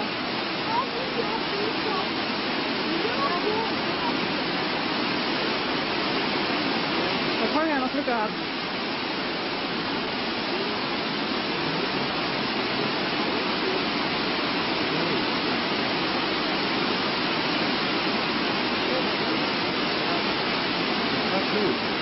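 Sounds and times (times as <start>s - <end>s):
steady rushing noise: 0.0s - 22.0s
faint voices: 0.6s - 4.8s, 10.4s - 15.6s, 18.6s - 22.0s.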